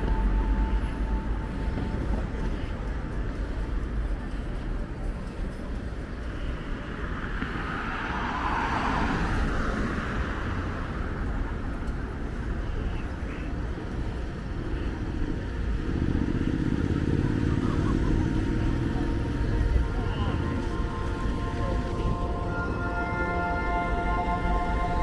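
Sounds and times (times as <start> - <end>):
road traffic passing: 0.0 - 25.0
vehicle engine running: 11.8 - 23.5.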